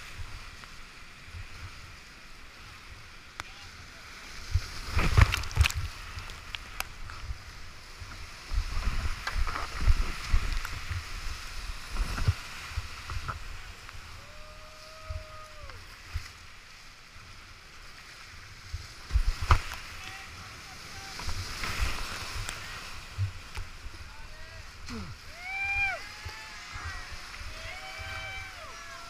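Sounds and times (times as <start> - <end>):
water thumping on camera: 4.5 - 7.4, 19.0 - 20.0
whitewater rapids rushing: 19.6 - 29.0.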